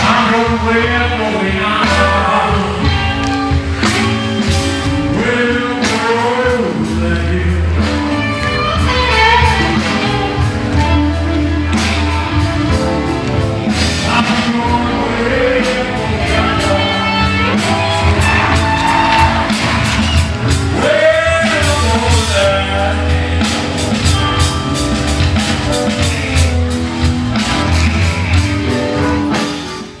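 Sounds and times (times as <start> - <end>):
person singing: 0.0 - 24.8
bass: 0.0 - 30.0
guitar: 0.0 - 30.0
steady drum beat: 0.0 - 30.0.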